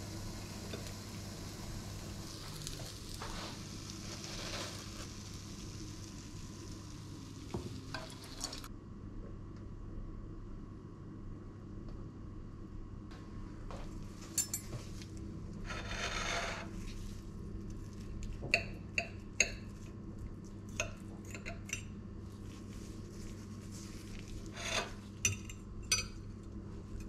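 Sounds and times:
cutlery scraping a plate: 0:15.6 - 0:16.7, 0:24.5 - 0:26.2.

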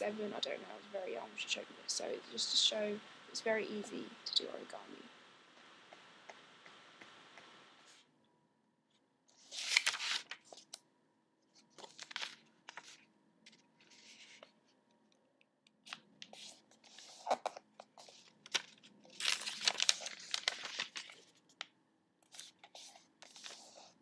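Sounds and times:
paper rustling: 0:09.3 - 0:10.8, 0:11.5 - 0:14.8, 0:15.8 - 0:24.0
paper creasing strokes: 0:22.3 - 0:24.0.

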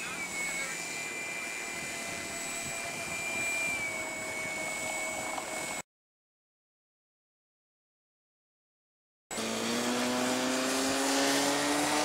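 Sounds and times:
electric motor and propeller whining: 0:00.0 - 0:05.9, 0:09.3 - 0:12.0.

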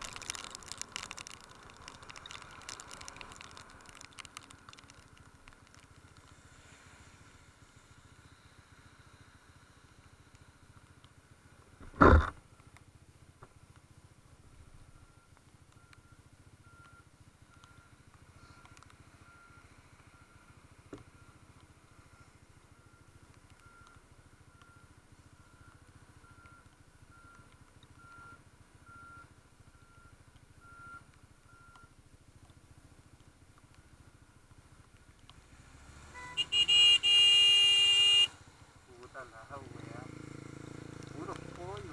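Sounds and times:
faint motorcycle engine running: 0:37.8 - 0:41.9.

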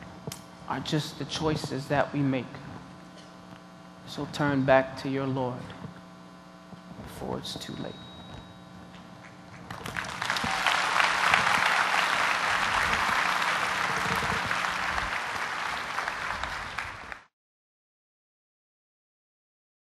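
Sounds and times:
faint low hum: 0:00.0 - 0:17.3
audience applauding: 0:09.6 - 0:17.3.

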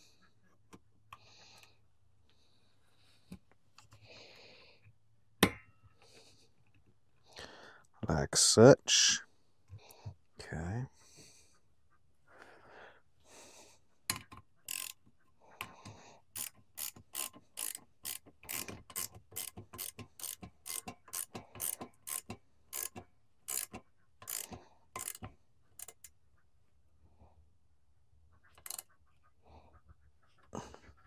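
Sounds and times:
ratchet wrench clicking: 0:14.7 - 0:15.0, 0:16.4 - 0:26.1, 0:28.6 - 0:28.8.

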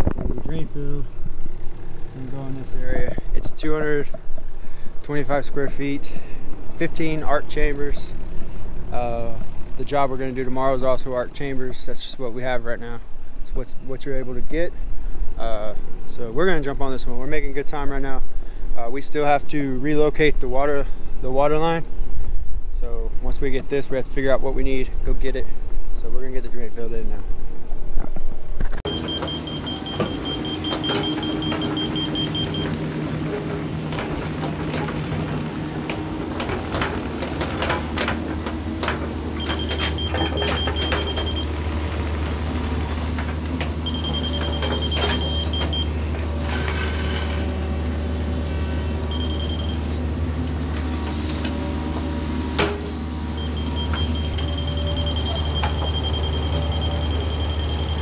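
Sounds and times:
diesel engine running: 0:00.0 - 0:13.4, 0:28.8 - 0:58.0
travel alarm beeping: 0:28.9 - 0:32.8, 0:39.4 - 0:41.6, 0:43.8 - 0:46.0, 0:49.1 - 0:49.9, 0:53.3 - 0:58.0.

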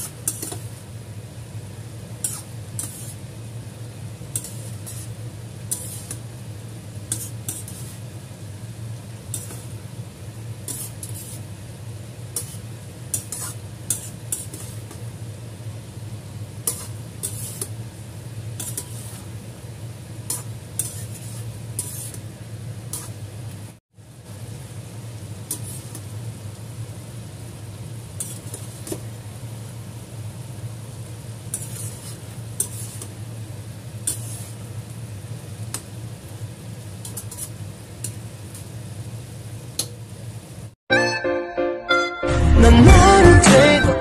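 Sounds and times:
metal spatula scraping a pan: 0:00.0 - 0:00.8, 0:02.2 - 0:03.3, 0:04.3 - 0:06.3, 0:07.1 - 0:08.1, 0:09.3 - 0:09.8, 0:10.6 - 0:11.5, 0:12.3 - 0:15.0, 0:16.6 - 0:17.8, 0:18.6 - 0:19.4, 0:20.2 - 0:22.3, 0:22.9 - 0:23.2, 0:25.5 - 0:26.1, 0:28.2 - 0:29.0, 0:31.4 - 0:33.2, 0:34.0 - 0:34.7, 0:37.0 - 0:38.2
faint sizzle: 0:00.0 - 0:40.8.

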